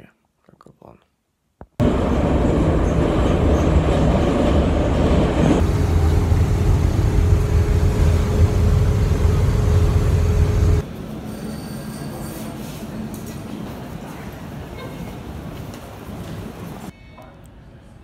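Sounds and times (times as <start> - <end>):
bus interior rumble: 1.8 - 10.8
rail car low rumble: 1.8 - 16.9.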